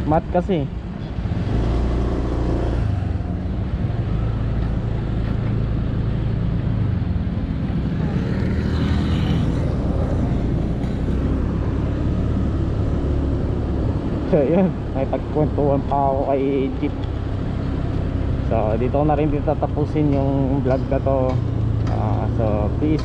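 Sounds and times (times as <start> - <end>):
scooter engine running: 6.8 - 15.0.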